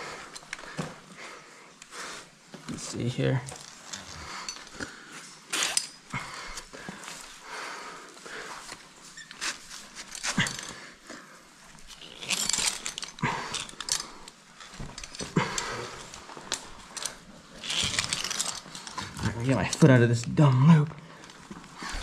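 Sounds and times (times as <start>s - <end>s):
person breathing hard: 0.0s - 2.4s, 6.1s - 8.8s, 15.2s - 16.4s.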